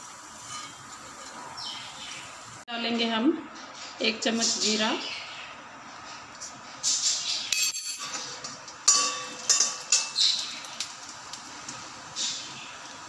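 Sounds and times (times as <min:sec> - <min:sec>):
seeds sizzling in hot oil: 0:00.0 - 0:02.6, 0:08.0 - 0:13.0
steel utensils clinking on pan: 0:00.4 - 0:01.4, 0:07.5 - 0:10.6.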